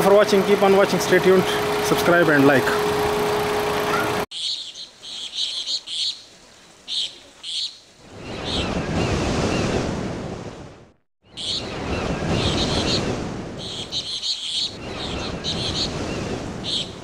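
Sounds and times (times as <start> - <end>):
surf-like noise: 14.7 - 17.0.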